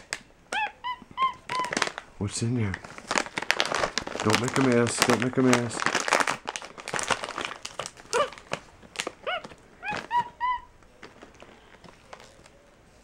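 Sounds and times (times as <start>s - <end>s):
monkey squeaky chirps: 0.5s - 1.8s, 9.2s - 10.7s
plastic snack bag rustling: 1.4s - 13.0s.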